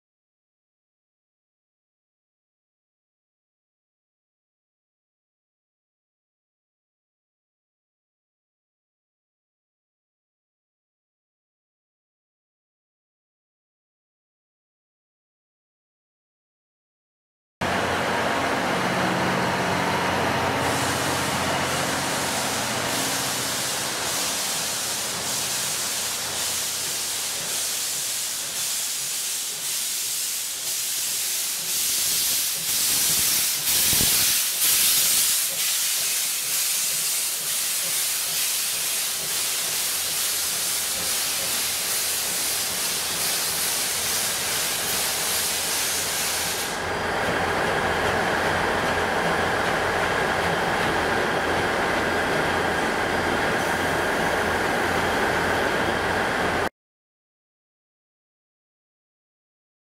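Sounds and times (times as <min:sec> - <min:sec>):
steam locomotive hissing: 0:17.7 - 0:56.7.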